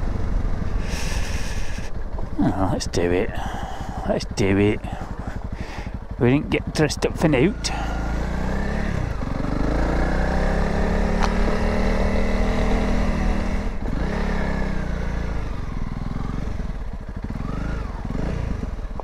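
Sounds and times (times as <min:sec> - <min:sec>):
motorcycle engine revving: 0:00.0 - 0:19.0
sharp click: 0:11.2 - 0:11.4.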